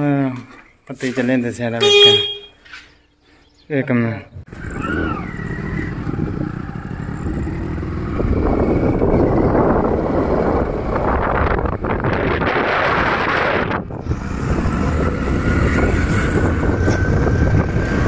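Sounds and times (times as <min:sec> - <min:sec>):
motorcycle riding along road: 0:04.4 - 0:18.0.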